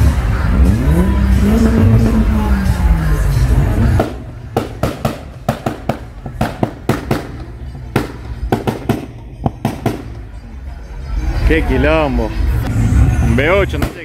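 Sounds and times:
car engine revving down: 0.0 - 8.3
exhaust pops and bangs: 3.7 - 10.2, 13.7 - 14.0.

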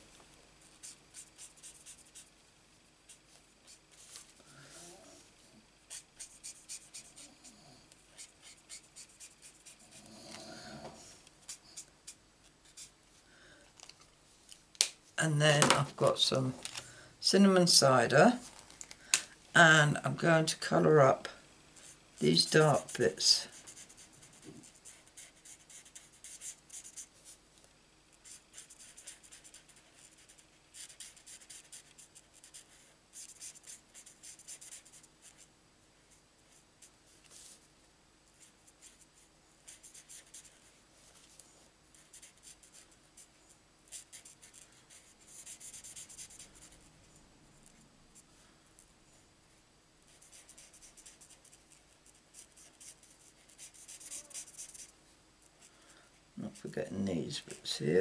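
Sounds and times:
marker scratching on paper: 0.8 - 2.3, 5.9 - 7.3, 8.2 - 9.9, 11.4 - 12.9, 21.8 - 27.4, 28.2 - 35.5, 38.4 - 40.6, 41.9 - 43.3, 43.9 - 46.8, 50.1 - 54.9.

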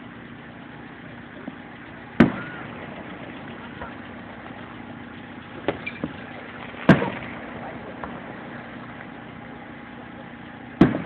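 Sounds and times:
firework boom with echo: 2.2 - 9.1, 10.8 - 11.0.

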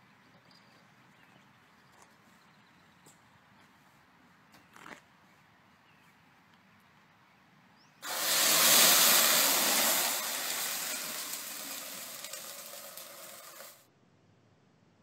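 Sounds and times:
oil fireball flame rush: 8.0 - 13.8.

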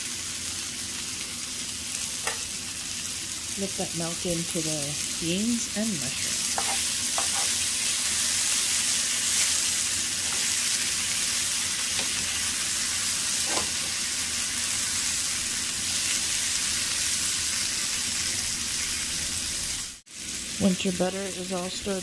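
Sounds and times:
vegetables sizzling in a frying pan: 0.0 - 22.0.

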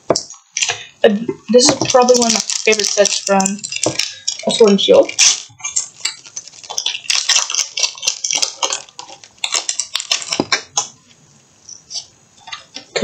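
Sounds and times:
foil wrapper crinkling: 1.5 - 11.2.

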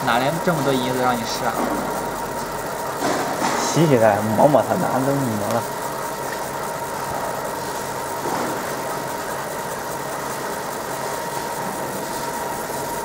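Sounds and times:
laser machine hum and hiss: 0.0 - 13.0.

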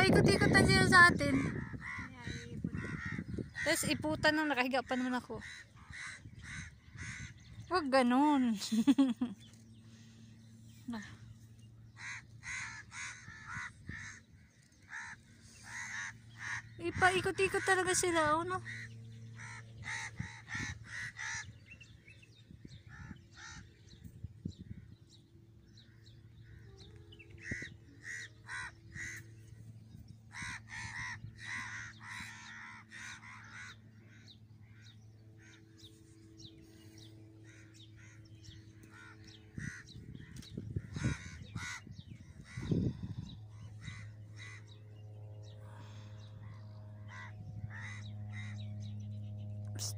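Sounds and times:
birds calling in short cries: 0.0 - 8.2, 10.8 - 49.2.

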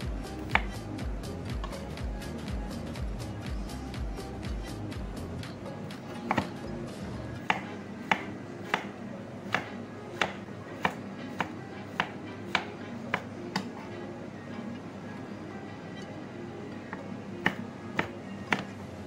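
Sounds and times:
background music: 0.0 - 19.0
cleaver chopping on wooden board: 0.5 - 0.8, 6.3 - 6.5, 7.4 - 8.9, 9.5 - 13.7, 17.5 - 18.7.

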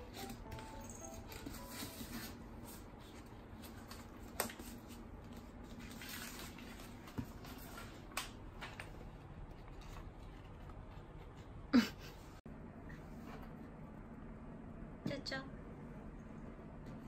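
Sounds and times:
rustling of crumpled paper: 0.0 - 11.0.

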